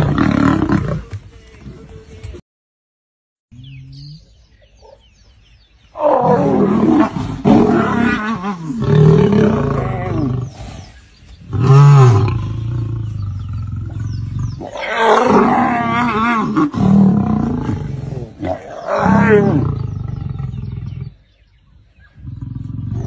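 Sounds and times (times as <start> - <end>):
lion growling and snarling: 0.0 - 1.0, 6.0 - 21.2, 22.1 - 23.0.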